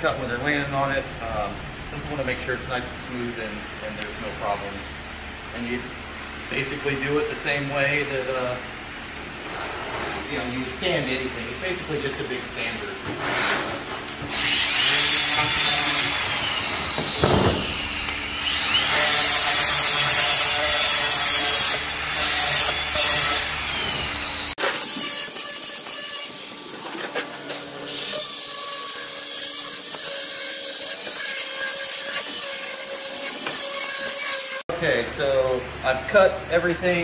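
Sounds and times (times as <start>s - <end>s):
angle grinder grinding metal: 13.3s - 34.6s.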